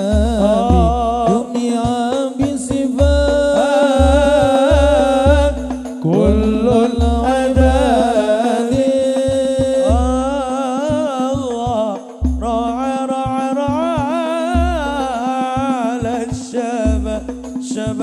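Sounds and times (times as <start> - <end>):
frame drums: 0.0 - 18.0
man singing melismatic line: 0.0 - 18.0
deep bass drum strokes: 0.1 - 2.1, 2.8 - 8.4.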